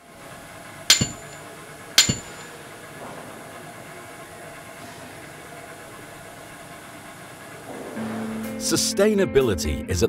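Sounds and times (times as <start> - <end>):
steady background drone: 0.0 - 8.8
sharp metallic hits: 0.9 - 2.6.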